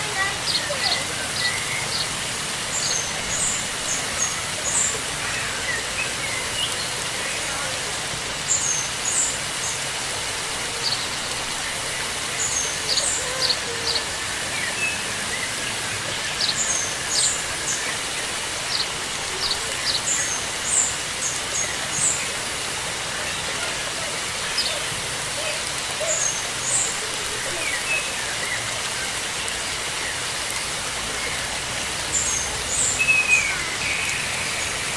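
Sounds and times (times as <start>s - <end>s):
running water hiss: 0.0s - 34.9s
small birds chirping: 0.0s - 34.9s.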